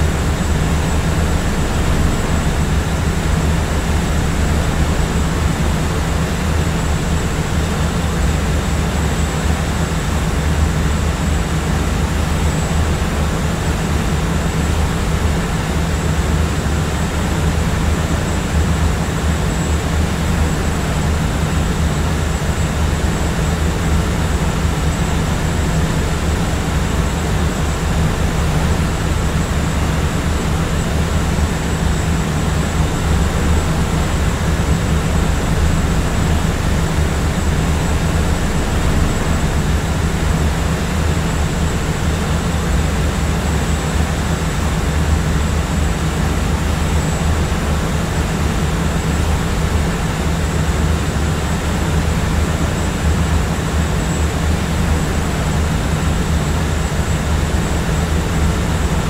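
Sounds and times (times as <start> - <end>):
jet cabin engine rush: 0.0 - 59.0.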